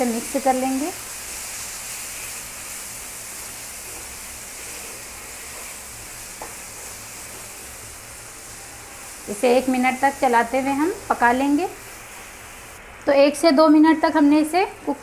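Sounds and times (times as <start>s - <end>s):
chicken sizzling in oil: 0.0s - 12.8s.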